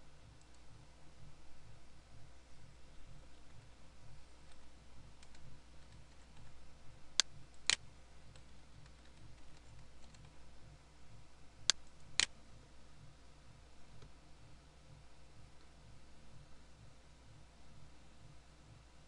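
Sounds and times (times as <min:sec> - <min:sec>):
low hum: 0:00.0 - 0:19.0
faint keyboard typing: 0:04.3 - 0:06.6, 0:07.2 - 0:10.4
sharp keyboard clicks: 0:05.2 - 0:06.5, 0:08.4 - 0:10.3.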